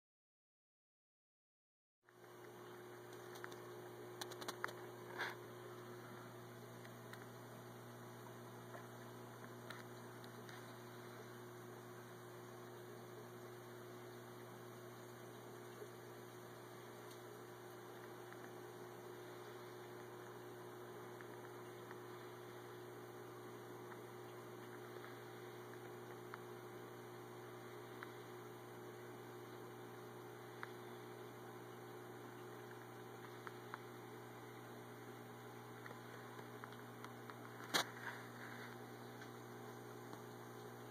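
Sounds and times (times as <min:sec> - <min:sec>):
faint clicks: 0:02.1 - 0:04.9
aquarium pumps humming: 0:02.1 - 0:40.9.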